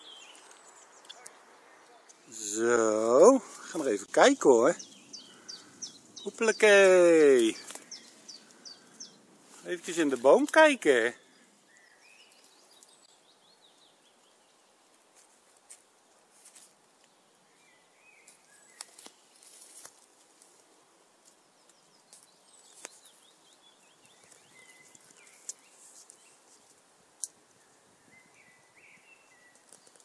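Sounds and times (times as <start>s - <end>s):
birds chirping and trilling: 0.0s - 14.8s, 21.6s - 26.7s.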